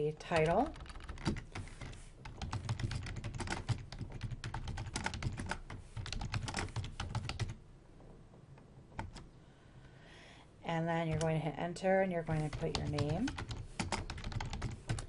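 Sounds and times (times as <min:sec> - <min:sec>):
computer keyboard typing: 0:00.0 - 0:07.6, 0:09.0 - 0:09.3, 0:12.3 - 0:15.0.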